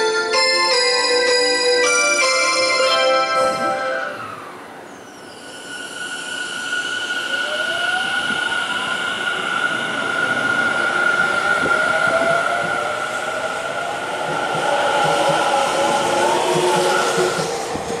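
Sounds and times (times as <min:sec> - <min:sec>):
train rolling noise: 0:00.0 - 0:18.0
train wheel clicks: 0:14.2 - 0:18.0.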